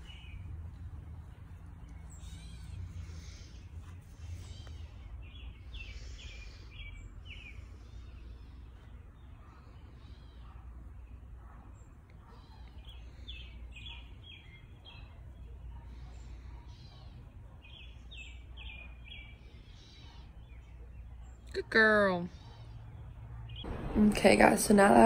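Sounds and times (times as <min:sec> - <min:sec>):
low outdoor rumble: 0:00.0 - 0:12.1, 0:21.2 - 0:25.0
birds chirping falling notes: 0:22.6 - 0:25.0.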